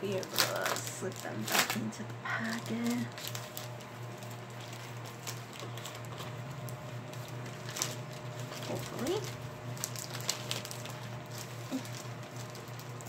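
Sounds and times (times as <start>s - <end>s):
packaging rustling: 0.0s - 13.0s.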